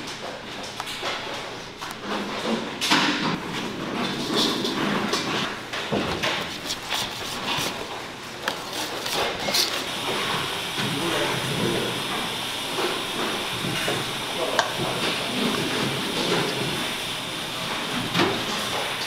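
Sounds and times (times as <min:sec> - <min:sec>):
kitchen background hiss: 0:00.0 - 0:19.0
whisk scraping a metal bowl: 0:06.2 - 0:07.9, 0:08.5 - 0:09.9.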